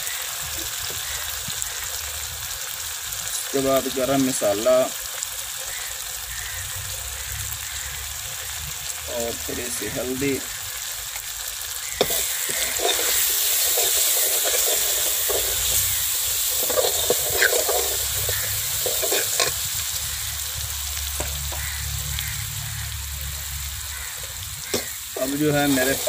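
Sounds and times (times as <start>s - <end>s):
food sizzling in a pan: 0.0s - 26.0s
metal ladle clinking and scraping pan: 12.0s - 19.7s, 24.7s - 26.0s.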